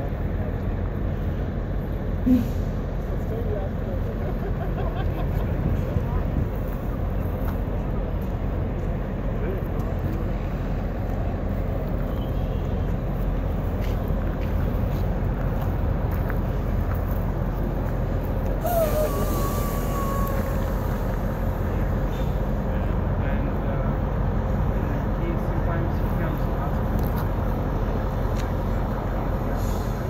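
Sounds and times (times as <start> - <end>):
diesel bus engine rumbling: 0.0 - 30.0
compressed air hissing: 18.6 - 21.5.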